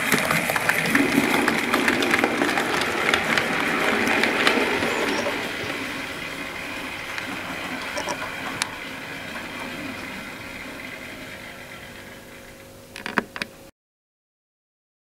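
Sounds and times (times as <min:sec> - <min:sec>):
model train motor hum: 0:00.0 - 0:13.7
wheels clicking over rail joints: 0:00.0 - 0:13.7.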